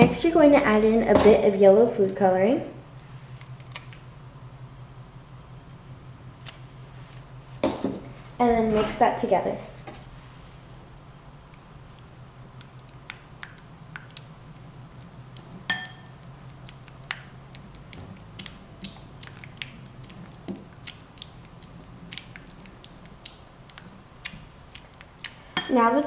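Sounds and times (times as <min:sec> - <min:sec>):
spatula tapping glass bowl: 0:15.7 - 0:16.2.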